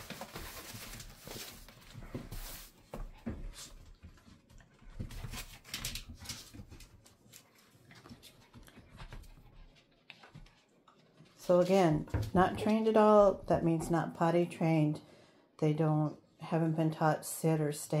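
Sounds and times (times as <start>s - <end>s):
puppy claws scrabbling on floor: 0.0s - 12.8s.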